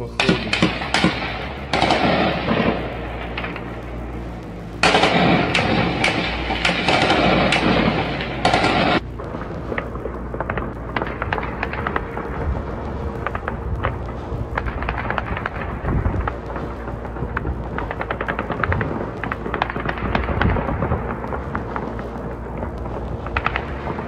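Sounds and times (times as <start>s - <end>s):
rapid gunfire bursts: 0.2s - 3.7s, 4.8s - 9.0s.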